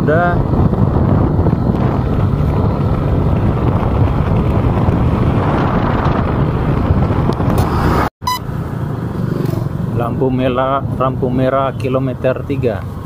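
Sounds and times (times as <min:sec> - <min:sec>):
wind buffeting microphone: 0:00.0 - 0:08.1
motorcycle engine and road noise: 0:00.0 - 0:13.0.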